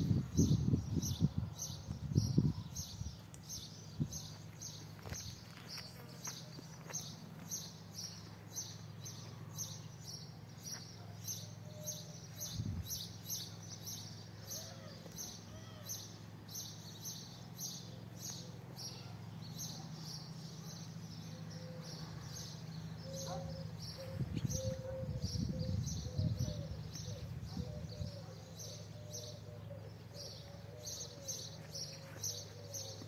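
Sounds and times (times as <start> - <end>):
footsteps on paving stones: 4.2 - 9.4, 10.6 - 11.0, 31.4 - 33.0
steady low hum: 19.4 - 33.0.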